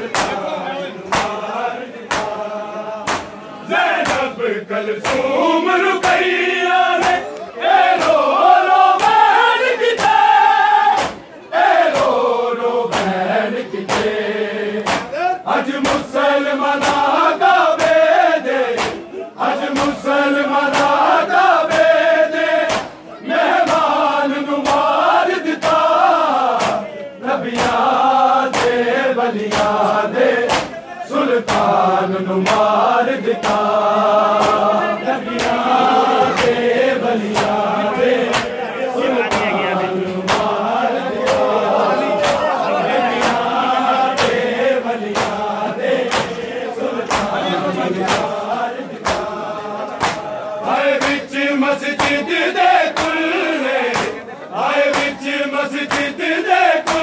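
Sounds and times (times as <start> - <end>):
men chanting a lament: 0.0 - 57.0
hands striking chest: 46.1 - 46.4.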